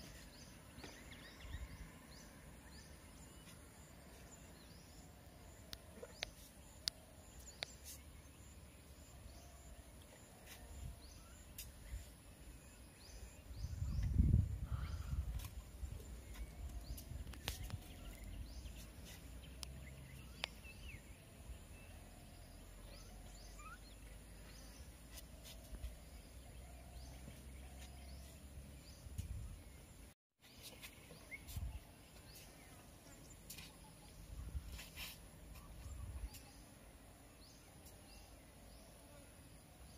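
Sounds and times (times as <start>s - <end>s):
faint chirps and clicks: 5.5s - 8.2s, 15.3s - 21.0s, 32.2s - 36.7s.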